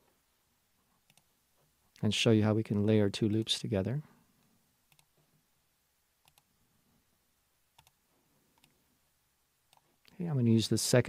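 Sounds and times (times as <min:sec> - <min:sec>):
computer mouse double-clicks: 0:06.2 - 0:06.5, 0:07.8 - 0:08.0.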